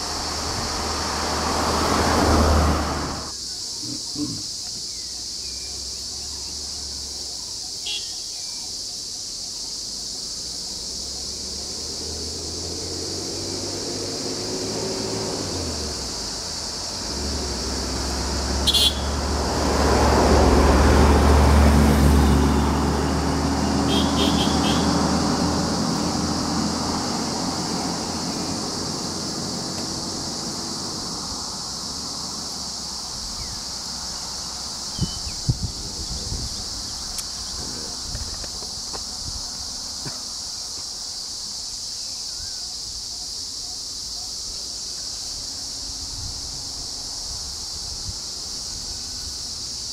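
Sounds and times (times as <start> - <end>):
insects droning: 0.0 - 49.9
vehicle engine idling: 15.4 - 49.9.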